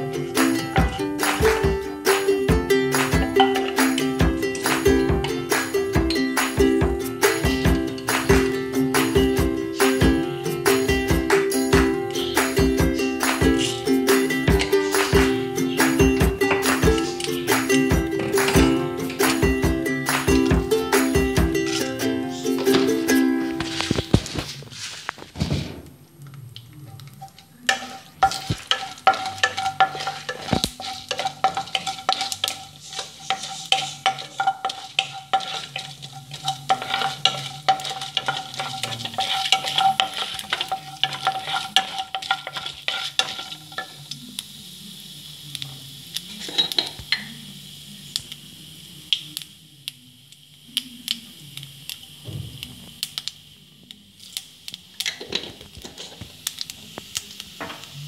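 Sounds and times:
oil sizzling: 0:00.0 - 0:58.0
spatula stirring and scraping: 0:02.9 - 0:06.5, 0:12.1 - 0:15.9, 0:21.6 - 0:25.6, 0:26.9 - 0:44.0.

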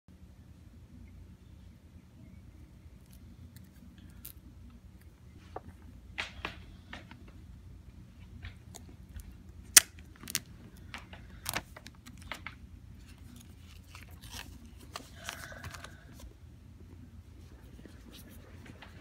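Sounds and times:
plastic wrap crinkling and tearing: 0:09.7 - 0:10.5, 0:11.3 - 0:16.2.

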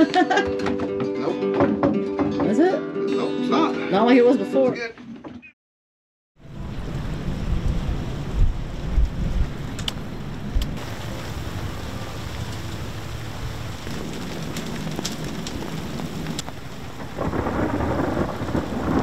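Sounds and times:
rain hissing on sea and boat: 0:06.4 - 0:19.0
raindrop ticks: 0:08.4 - 0:19.0.

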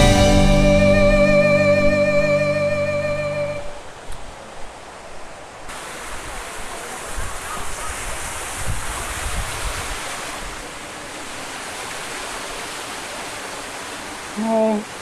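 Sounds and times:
fountain water falling: 0:05.7 - 0:15.0
wind buffeting microphone: 0:07.2 - 0:10.6.

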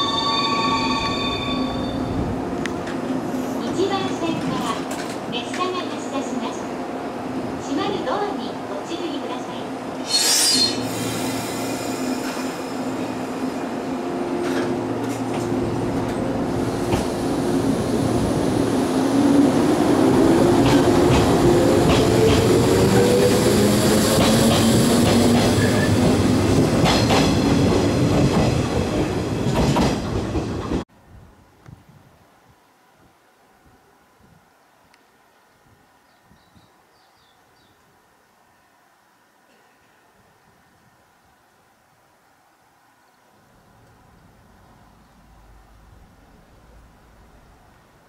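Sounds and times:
train wheels clattering: 0:24.0 - 0:30.8.

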